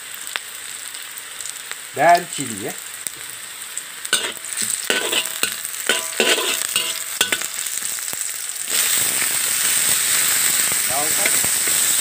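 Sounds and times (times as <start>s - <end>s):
garlic and onion sizzling in oil: 0.0s - 12.0s
metal spatula scraping pan: 4.2s - 7.7s.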